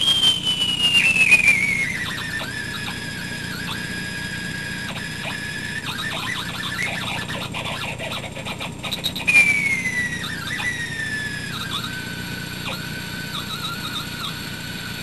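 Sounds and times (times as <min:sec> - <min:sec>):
whistle-like tone from speaker: 0:00.0 - 0:15.0.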